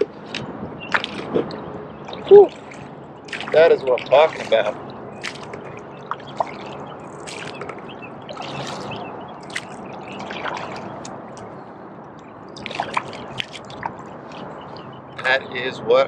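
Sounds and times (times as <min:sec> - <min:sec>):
kayak paddle strokes splashing: 0:00.2 - 0:11.5, 0:12.5 - 0:15.4
water dripping off paddle: 0:02.1 - 0:11.5, 0:12.5 - 0:14.9.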